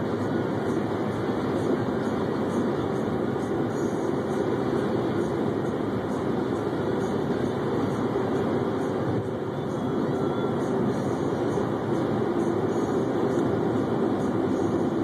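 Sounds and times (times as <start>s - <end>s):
car cabin road and engine noise: 0.0s - 15.0s.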